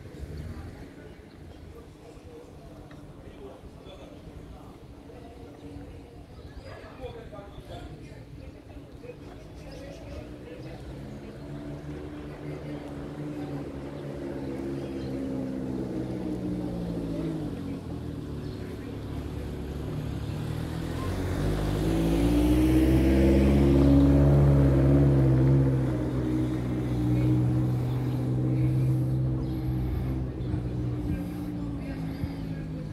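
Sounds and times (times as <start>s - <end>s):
vehicle engine running: 11.3s - 32.9s.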